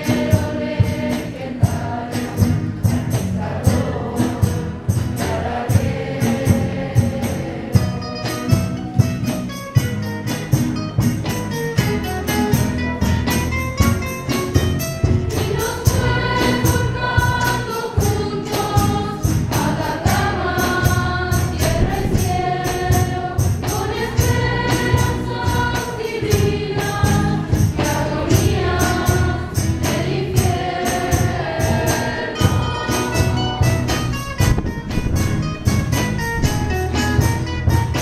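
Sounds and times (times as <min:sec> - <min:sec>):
children's choir singing: 0:00.0 - 0:08.8, 0:15.0 - 0:34.2
guitars strummed: 0:00.0 - 0:38.0.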